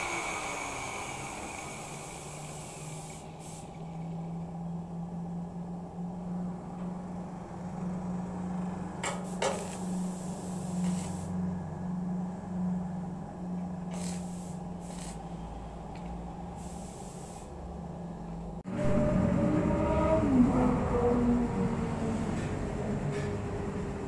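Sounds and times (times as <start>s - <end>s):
arc welding hissing crackle: 0.0s - 3.9s, 9.2s - 11.3s, 13.9s - 15.3s, 16.6s - 17.6s
low hum: 0.0s - 24.0s.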